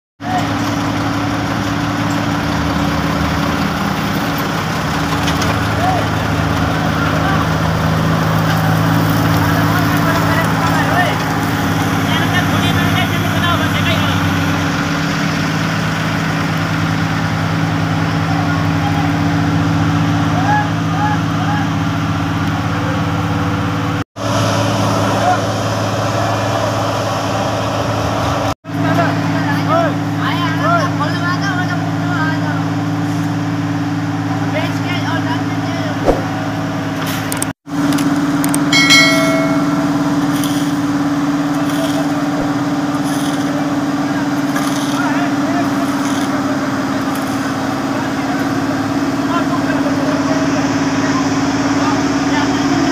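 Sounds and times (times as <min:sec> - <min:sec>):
diesel engine running: 0:00.2 - 0:52.9
short metallic clang: 0:38.8 - 0:40.8.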